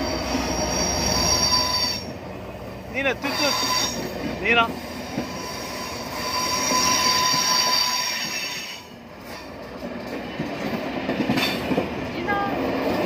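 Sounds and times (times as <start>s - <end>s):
train wheels squealing: 0.0s - 2.4s, 3.0s - 9.6s
train clattering: 0.0s - 13.0s
train rolling rumble: 0.0s - 13.0s.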